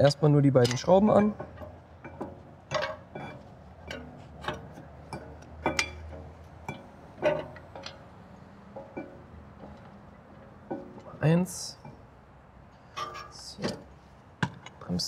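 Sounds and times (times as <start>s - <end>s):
light metallic clinks and taps: 0.6s - 8.0s.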